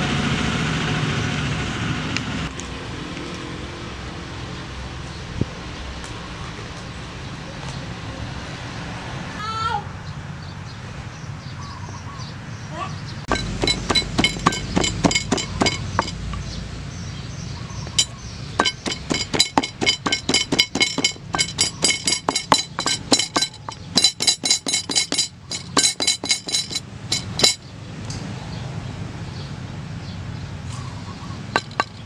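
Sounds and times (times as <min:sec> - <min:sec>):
wooden pestle pounding in mortar: 0:13.3 - 0:16.5, 0:18.0 - 0:27.6, 0:31.6 - 0:32.0.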